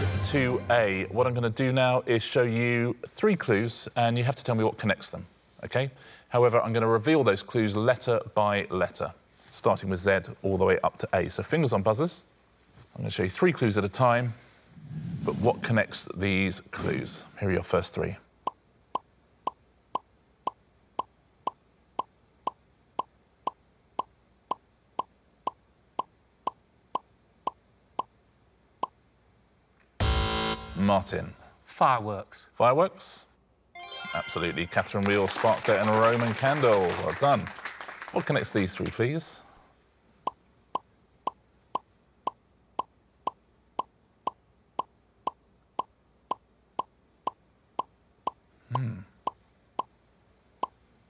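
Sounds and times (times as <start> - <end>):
short electronic blips: 30.0 - 30.8.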